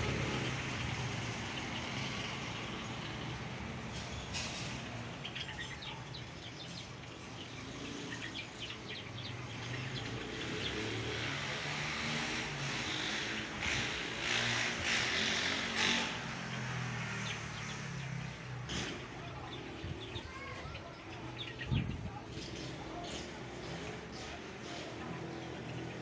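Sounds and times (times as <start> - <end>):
road traffic rumble: 0.0 - 26.0
sparrows chirping: 0.0 - 26.0.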